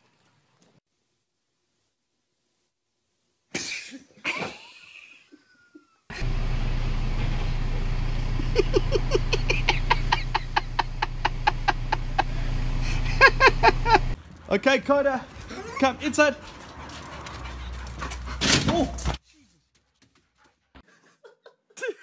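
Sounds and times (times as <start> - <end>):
person laughing: 4.2 - 6.2, 8.4 - 14.2, 20.8 - 22.0
low engine hum: 6.1 - 14.2.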